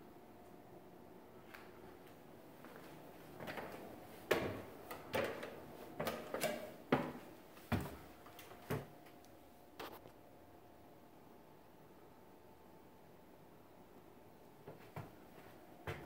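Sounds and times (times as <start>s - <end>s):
footsteps on wooden steps: 2.6s - 8.9s.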